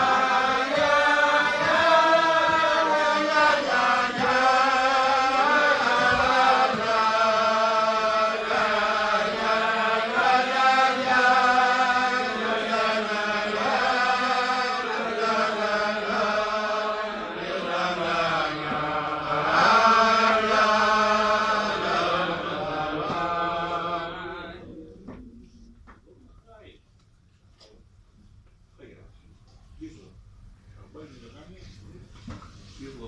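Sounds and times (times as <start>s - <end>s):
men singing a wordless melody: 0.0s - 25.0s.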